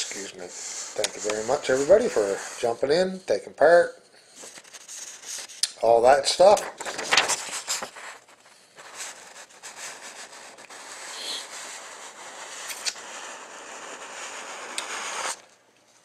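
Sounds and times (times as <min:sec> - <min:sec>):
paper rustling: 0:04.4 - 0:05.6, 0:06.3 - 0:11.2.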